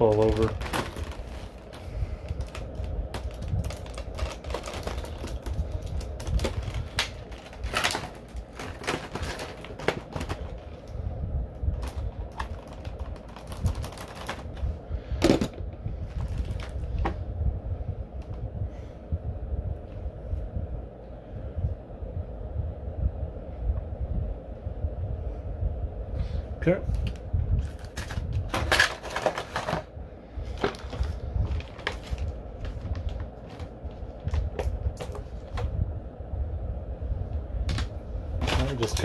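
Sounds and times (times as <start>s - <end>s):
plastic packaging crinkling: 0.0s - 10.9s, 11.7s - 14.6s, 16.1s - 16.9s, 27.0s - 29.9s, 30.5s - 35.6s
plastic snapping: 2.3s - 10.6s.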